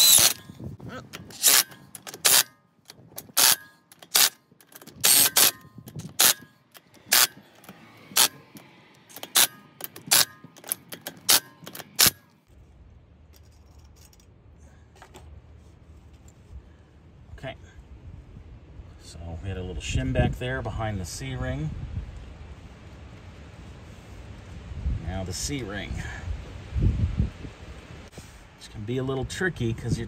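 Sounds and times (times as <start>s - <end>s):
metallic bolt clicks: 1.1s - 12.4s.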